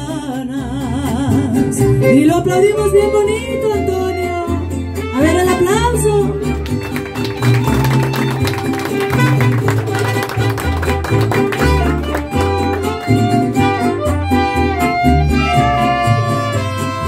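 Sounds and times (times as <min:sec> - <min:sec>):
bass guitar line: 0:00.0 - 0:17.0
guitars strumming: 0:00.0 - 0:17.0
violin melody: 0:01.9 - 0:17.0.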